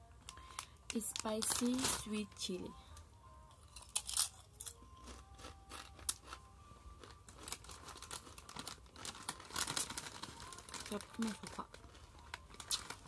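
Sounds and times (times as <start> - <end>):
crunching tortilla chip: 3.7 - 13.0.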